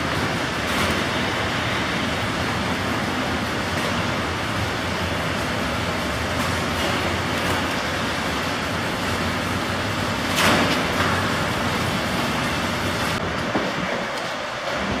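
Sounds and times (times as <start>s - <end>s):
steady rushing background noise: 0.0s - 15.0s.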